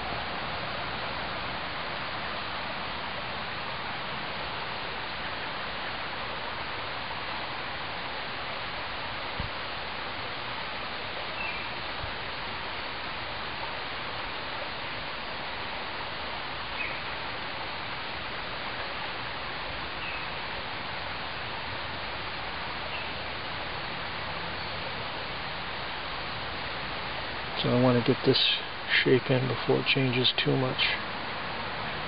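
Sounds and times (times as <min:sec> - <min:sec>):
outdoor hiss: 0:00.0 - 0:32.0
faint bird chirps: 0:11.3 - 0:11.8, 0:16.7 - 0:17.2, 0:19.9 - 0:20.4, 0:22.8 - 0:23.3.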